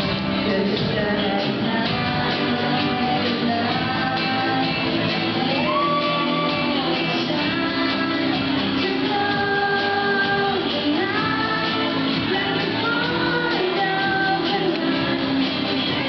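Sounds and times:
band playing: 0.0 - 16.0
woman singing into microphone: 0.0 - 16.0.

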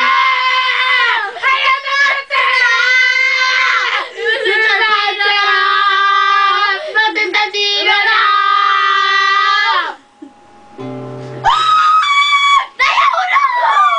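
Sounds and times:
girl singing loudly: 0.0 - 10.0
strummed classical guitar: 10.2 - 11.6
high shrill held note: 10.2 - 12.9.

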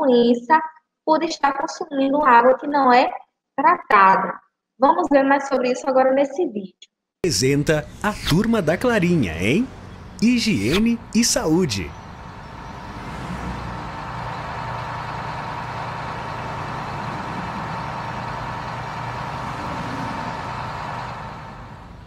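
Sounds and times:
cartoon van engine running: 7.2 - 22.0.

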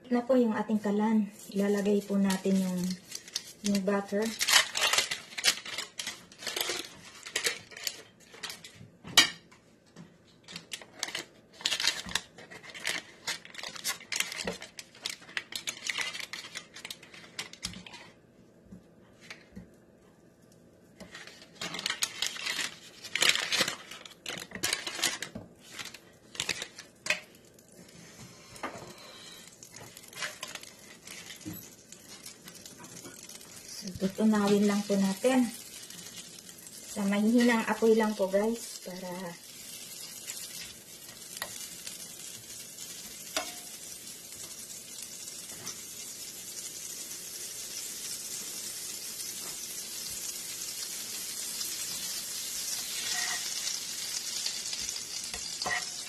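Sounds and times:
butter sizzling in pan: 0.8 - 8.2, 21.2 - 56.0
paper wrappers crinkling and tearing: 1.2 - 8.7, 10.4 - 18.1, 21.0 - 27.8, 29.4 - 56.0.

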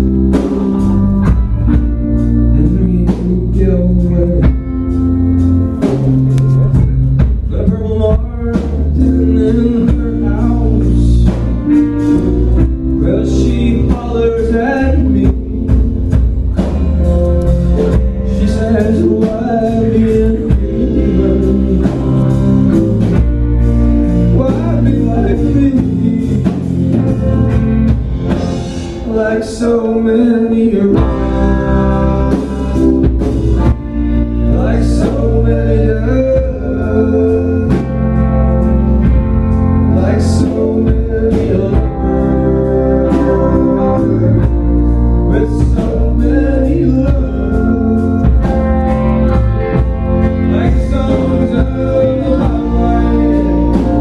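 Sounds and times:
person singing: 0.0 - 23.4, 24.0 - 27.6, 28.3 - 39.1, 39.7 - 54.0
drum kit: 0.0 - 54.0
guitar: 0.0 - 54.0.

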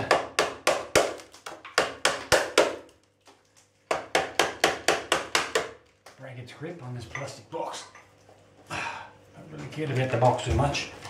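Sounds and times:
hammer knocking on plastic box: 3.9 - 5.8.

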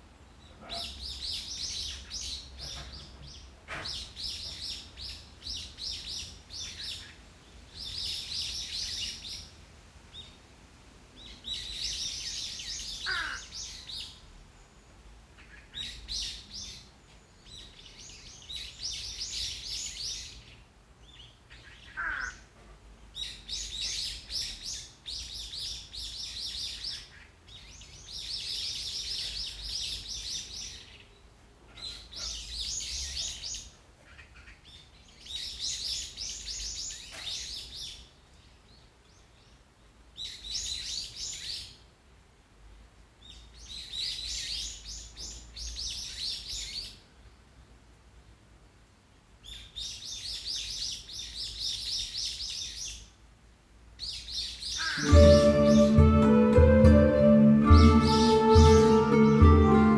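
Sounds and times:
birds chirping: 11.2 - 14.2, 54.0 - 59.9
low falling whistle: 55.0 - 59.9.

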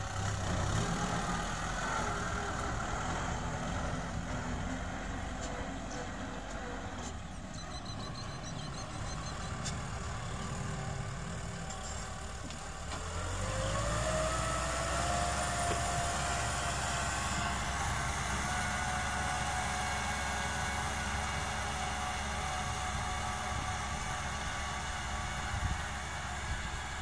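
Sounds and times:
tractor diesel engine running: 0.0 - 27.0.

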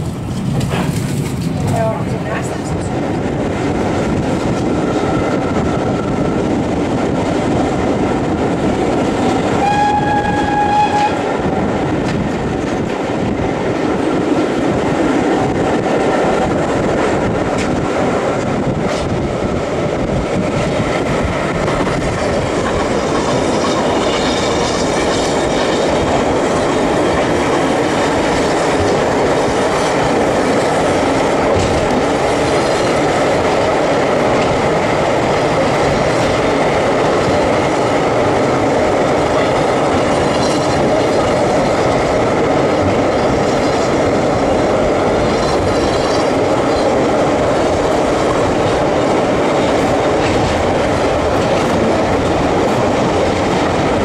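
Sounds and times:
train wheels rumbling on track: 0.0 - 54.0
steam locomotive whistle: 9.5 - 11.3.

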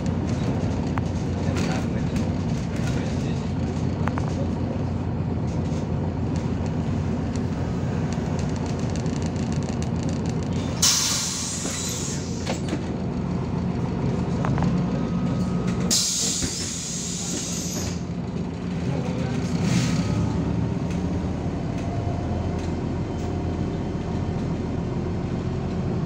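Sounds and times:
bus engine running: 0.0 - 26.0
compressed air hissing: 15.9 - 17.9.

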